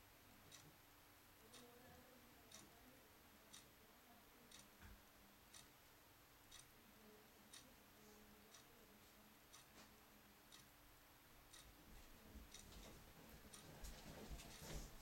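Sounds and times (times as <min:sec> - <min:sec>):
soft sharp ticking: 0:00.4 - 0:02.9, 0:03.5 - 0:03.7, 0:04.5 - 0:04.9, 0:05.5 - 0:06.8, 0:07.5 - 0:07.7, 0:08.5 - 0:08.8, 0:09.5 - 0:09.8, 0:10.4 - 0:10.8, 0:11.4 - 0:15.0.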